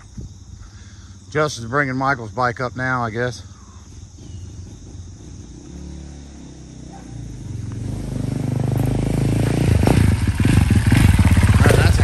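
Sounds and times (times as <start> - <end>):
dirt bike engine running: 3.4 - 12.0.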